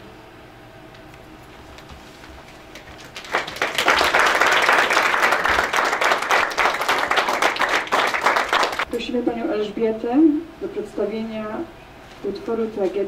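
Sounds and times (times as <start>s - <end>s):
audience applauding: 2.4s - 8.9s.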